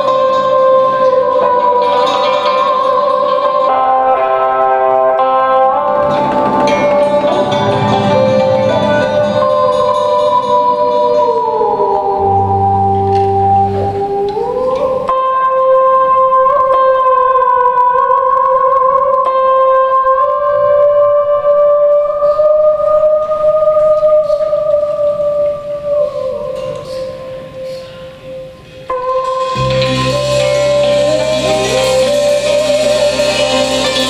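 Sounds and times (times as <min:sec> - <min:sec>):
solo melody with long bending notes: 0:00.0 - 0:34.0
traditional ensemble accompaniment: 0:29.3 - 0:34.0.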